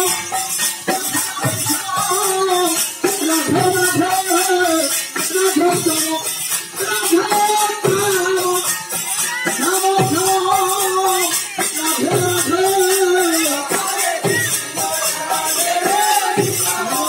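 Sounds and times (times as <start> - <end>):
jingling percussion: 0.0 - 17.0
person singing devotional melody: 0.0 - 17.0.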